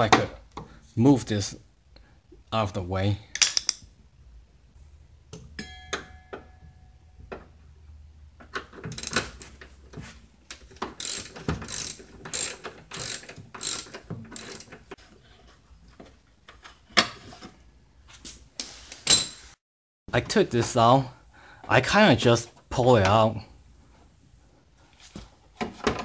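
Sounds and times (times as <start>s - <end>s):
socket ratchet clicking: 11.0s - 14.7s.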